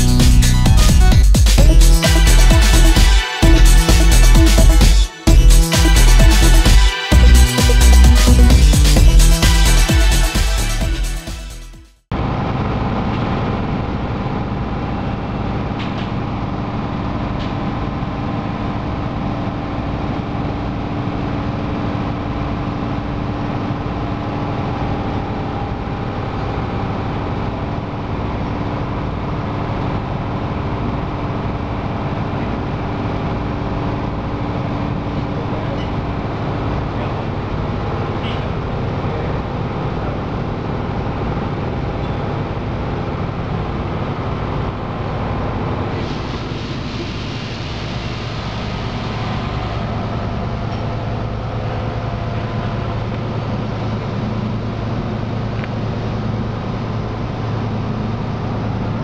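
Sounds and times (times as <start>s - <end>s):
background music: 0.0s - 11.9s
engine room machinery drone: 0.0s - 59.0s.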